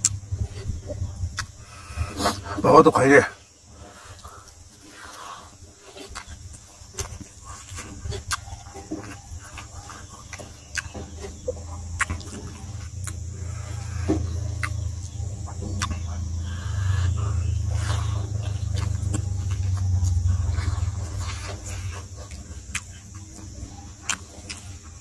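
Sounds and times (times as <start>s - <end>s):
man chewing and lip-smacking: 0.0s - 2.4s, 3.7s - 25.0s
low rumble: 0.0s - 2.6s, 9.6s - 24.0s.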